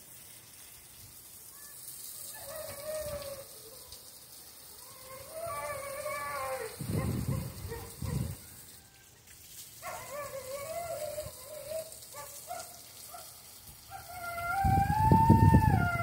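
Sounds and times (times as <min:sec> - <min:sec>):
dog whining and howling: 0:02.3 - 0:03.9, 0:04.8 - 0:08.4, 0:09.8 - 0:13.2, 0:13.9 - 0:16.0.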